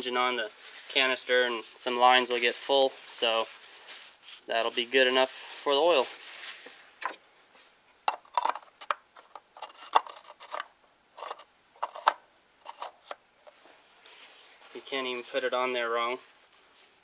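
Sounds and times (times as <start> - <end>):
plastic cap clicking and scraping: 8.1 - 13.2.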